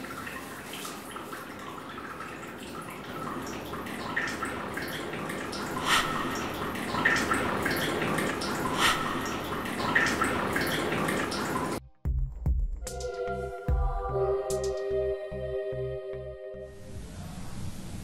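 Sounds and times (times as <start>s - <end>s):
water drops plopping: 0.0s - 11.8s
water running and splashing: 0.0s - 11.8s
soft music with sustained notes: 12.8s - 17.1s.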